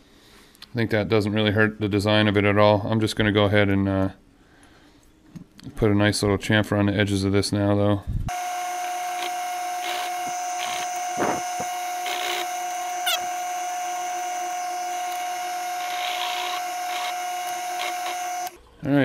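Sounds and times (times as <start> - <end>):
drill bit scraping metal: 8.3 - 18.6
drill press whining: 8.3 - 18.6.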